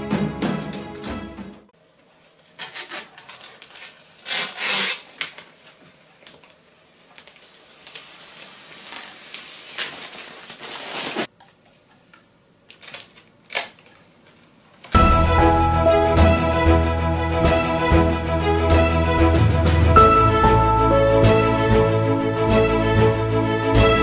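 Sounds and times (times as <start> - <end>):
plastic film peeling and crackling: 2.1 - 15.0.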